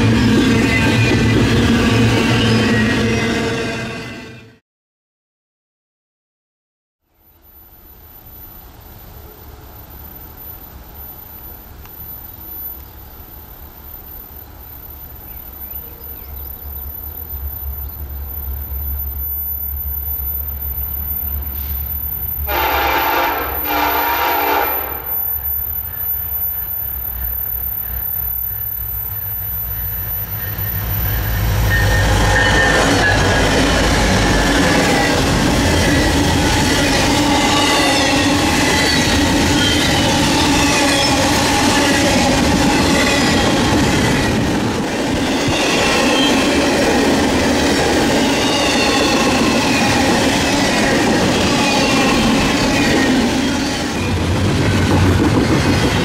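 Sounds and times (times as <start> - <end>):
diesel locomotive engine rumble: 0.0 - 3.8, 8.2 - 56.0
train horn blasts: 22.5 - 25.2
wheels squealing: 24.9 - 46.8
wheels clattering on rails: 28.9 - 56.0.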